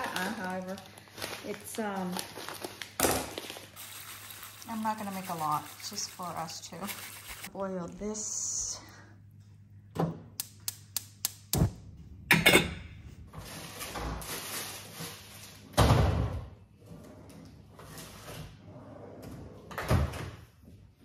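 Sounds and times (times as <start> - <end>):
burner igniting thump: 11.6 - 11.8.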